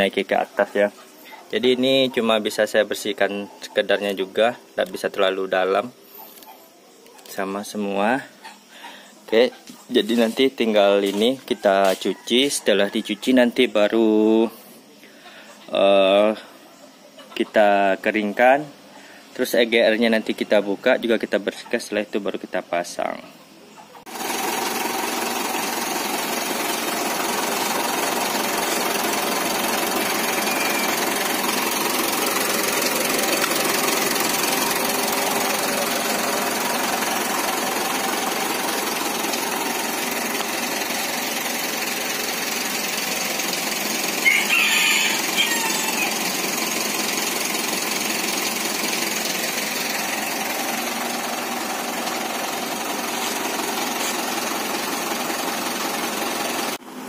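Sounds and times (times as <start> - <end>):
diesel engine idling: 0.0 - 22.0, 22.9 - 57.0.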